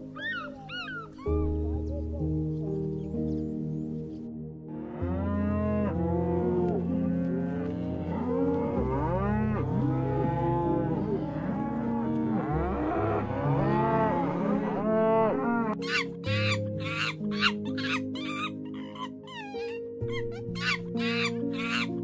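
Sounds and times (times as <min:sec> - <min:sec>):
low background music: 0:00.0 - 0:22.0.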